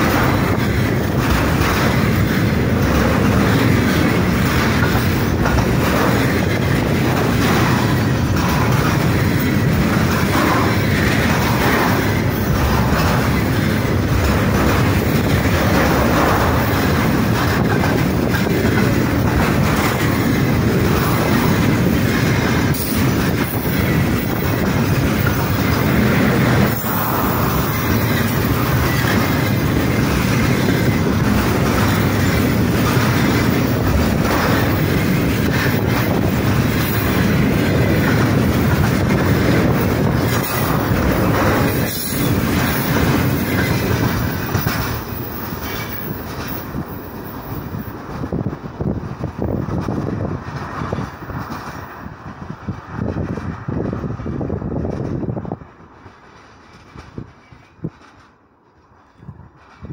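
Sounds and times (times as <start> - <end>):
wheels knocking on rail joints: 0.0 - 52.0
freight train rumbling past: 0.0 - 59.9.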